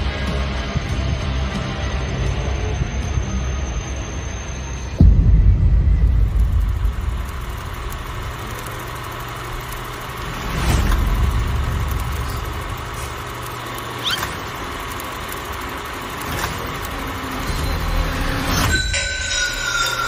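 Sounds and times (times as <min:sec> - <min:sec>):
low steady drone: 0:00.0 - 0:20.0
swelling hit: 0:04.9 - 0:14.0.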